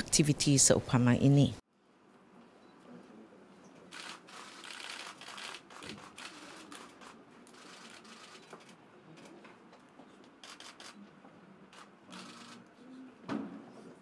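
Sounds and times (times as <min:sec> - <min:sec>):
camera clicks: 0:03.9 - 0:08.8, 0:10.4 - 0:11.0, 0:11.7 - 0:12.7.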